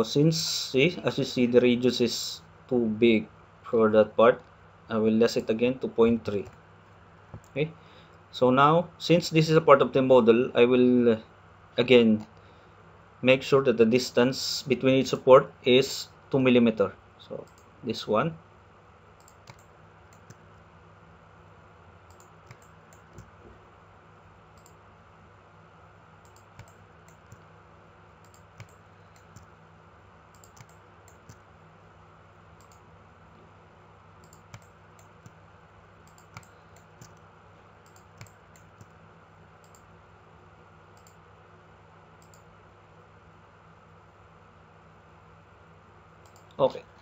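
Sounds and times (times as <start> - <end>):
faint electrical hum and hiss: 0.0 - 47.0
computer mouse clicks: 17.4 - 17.7, 19.2 - 20.4, 22.1 - 23.3, 24.6 - 24.8, 26.2 - 27.5, 28.2 - 29.5, 30.3 - 31.4, 32.6 - 32.9, 34.2 - 35.4, 36.0 - 37.2, 37.8 - 39.0, 39.6 - 39.9, 41.0 - 41.2, 42.2 - 42.5, 46.2 - 46.6.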